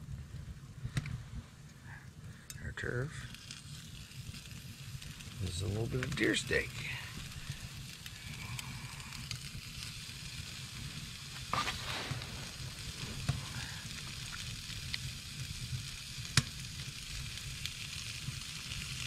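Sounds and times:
steaks sizzling in a frying pan: 3.3 - 19.0.

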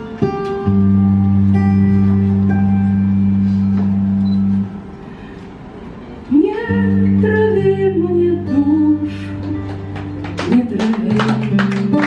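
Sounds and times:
woman singing: 6.3 - 12.0.

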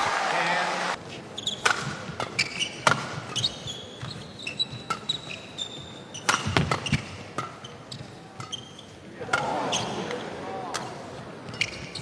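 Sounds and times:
shoes squeaking on court floor: 1.1 - 9.0, 11.4 - 12.0
rackets striking shuttlecock: 6.2 - 7.6.

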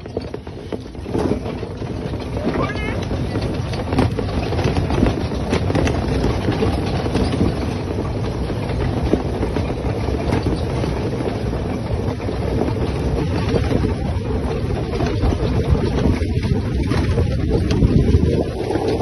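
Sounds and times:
quad bike engines running: 0.0 - 19.0
wind on microphone: 12.0 - 19.0.

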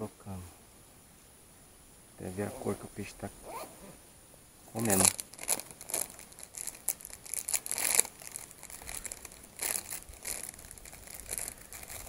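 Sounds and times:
plastic crinkling and rustling: 4.8 - 12.0.

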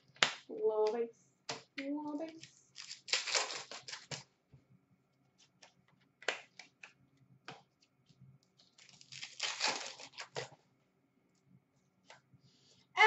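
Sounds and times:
cards flicking and rustling: 2.3 - 4.3, 5.4 - 10.6
card pack ripping: 2.4 - 4.2, 8.7 - 10.5.

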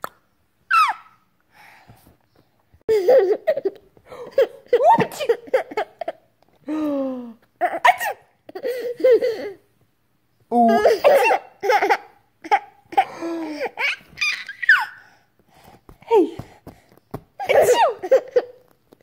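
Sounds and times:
baby laughing and giggling: 2.9 - 6.3, 7.6 - 9.6, 10.6 - 15.1, 17.4 - 18.7.

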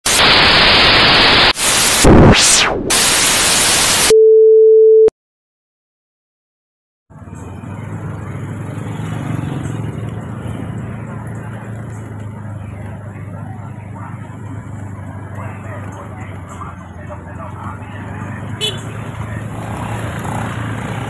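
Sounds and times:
static hiss burst: 0.1 - 4.1
steady beep: 4.0 - 5.1
motor scooter engine passing: 7.1 - 21.0
street noise: 7.1 - 21.0.

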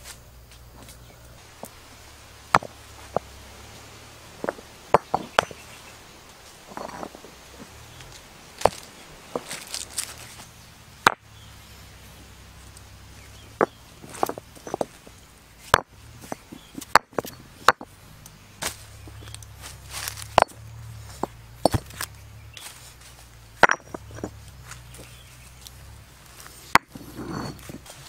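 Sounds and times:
stone knocking on stone: 2.5 - 3.4, 4.4 - 5.7, 6.7 - 7.7, 11.0 - 11.2, 13.5 - 15.0, 15.7 - 17.9, 21.2 - 22.1, 23.6 - 25.2, 26.7 - 27.8.

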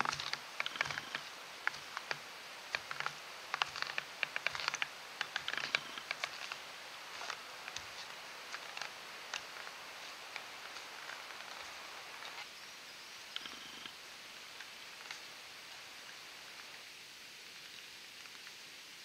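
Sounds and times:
stilts crunching in snow: 2.8 - 12.4.

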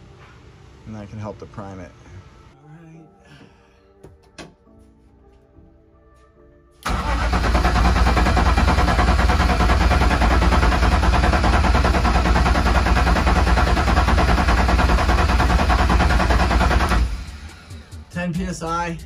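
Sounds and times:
engine cranking by starter motor: 6.8 - 18.1.

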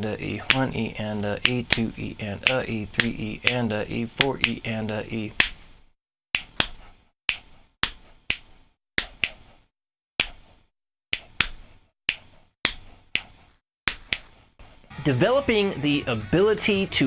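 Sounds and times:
finger snaps: 4.2 - 4.6, 6.4 - 9.5, 10.2 - 10.4, 11.1 - 14.3
hand slaps on thigh: 6.4 - 9.4, 10.2 - 10.4, 11.1 - 14.3.

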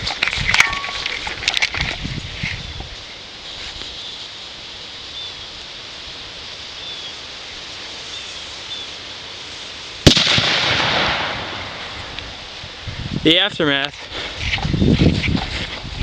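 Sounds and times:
explosion crack with echo: 10.0 - 12.1.

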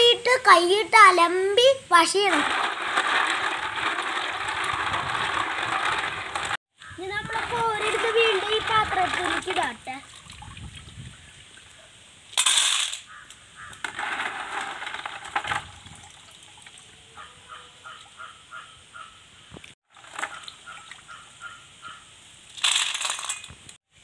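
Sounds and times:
water splashing: 7.9 - 11.8
water dripping into bucket: 9.2 - 11.8, 15.8 - 17.0
bird calling: 13.0 - 13.8, 17.0 - 19.7, 20.3 - 22.2.

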